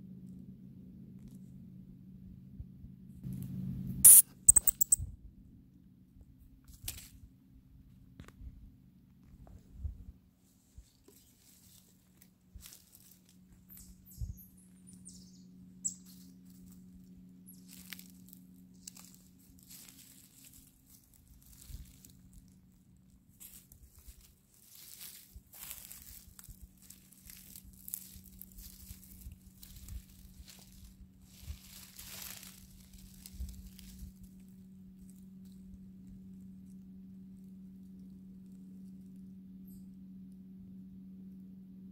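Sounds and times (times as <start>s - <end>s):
faint low hum: 0.0s - 41.9s
high squeaks: 4.0s - 5.0s
pine needles and leaves rustling: 6.6s - 7.2s, 10.4s - 39.8s.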